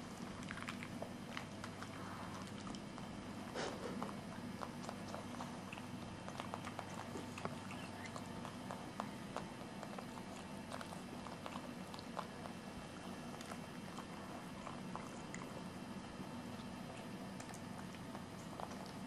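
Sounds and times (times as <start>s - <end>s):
dog chewing with wet smacks: 0.0s - 19.0s.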